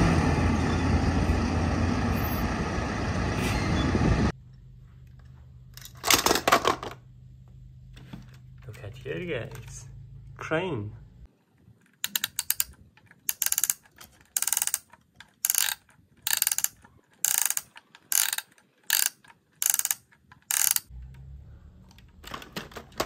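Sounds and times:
toy winch ratcheting: 11.9s - 21.3s.

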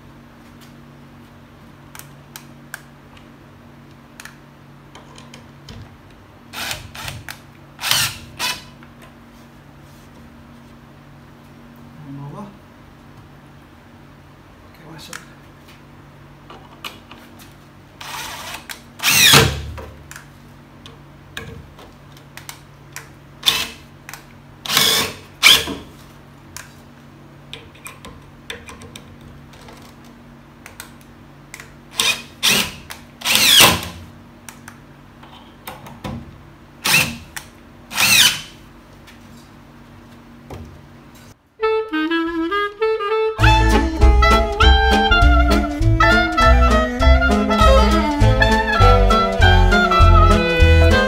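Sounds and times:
cordless drill whine: 6.6s - 7.2s, 7.8s - 8.7s, 18.0s - 19.5s, 24.7s - 25.6s, 32.0s - 33.7s, 36.8s - 37.2s, 37.9s - 38.5s
swing jazz with saxophone: 41.6s - 51.0s.

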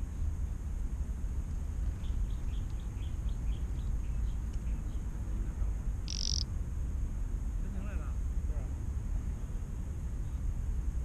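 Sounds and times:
low steady rumble: 0.0s - 11.0s
small bird chirping: 1.9s - 5.2s, 6.0s - 6.5s.

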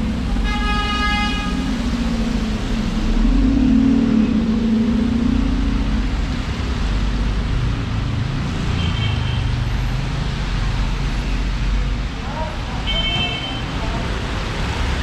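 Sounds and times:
traffic rumble: 0.0s - 15.0s
car horn: 0.4s - 1.7s, 12.9s - 13.7s.

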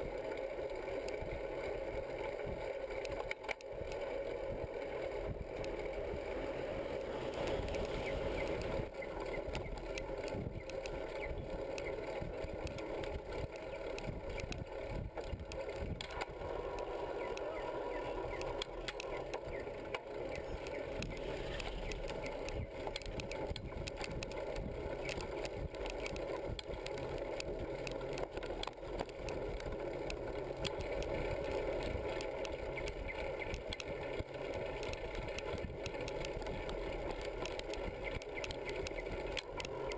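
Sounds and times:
bicycle tyres on paved road: 0.0s - 39.9s
bike and metal rack rattling: 18.2s - 39.9s.

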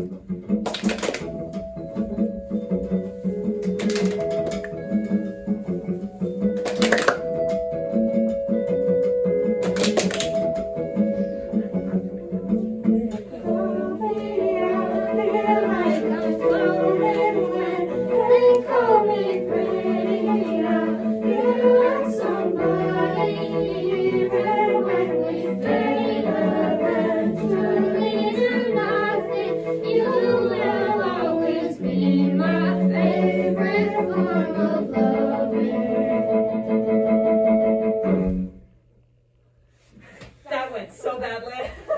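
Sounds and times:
keyboard: 0.0s - 38.6s
violin and cello: 10.2s - 38.6s
person singing: 12.8s - 36.6s.

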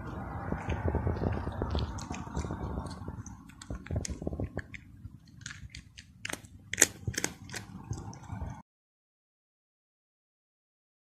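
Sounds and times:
cat crunching dry food: 0.5s - 8.6s.

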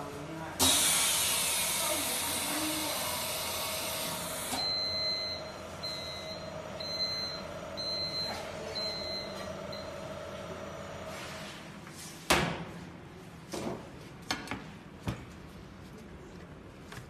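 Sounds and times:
compressed air hissing: 0.6s - 4.6s.

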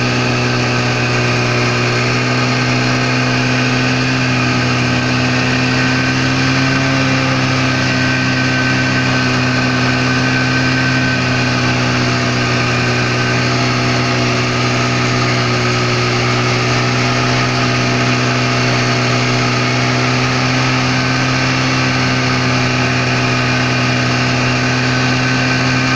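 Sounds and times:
snowmobile engine running steadily: 0.0s - 25.9s.

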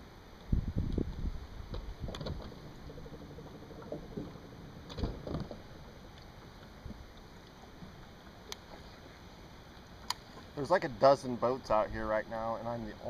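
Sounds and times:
knocks and thumps on a boat: 1.7s - 7.0s.

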